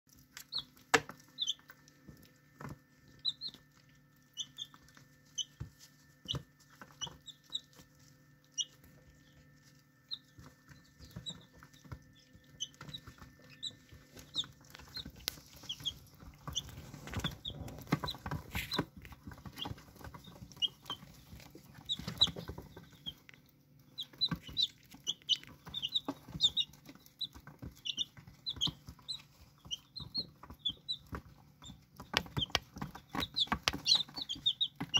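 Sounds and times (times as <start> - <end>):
chicks cheeping: 0.1 - 34.9
beaks tapping: 10.0 - 34.9.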